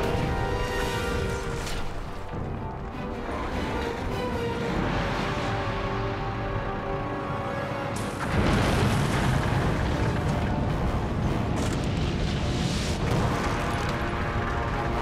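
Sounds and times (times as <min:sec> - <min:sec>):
tense film score music: 0:00.0 - 0:15.0
loud blast of earth and debris: 0:07.9 - 0:15.0.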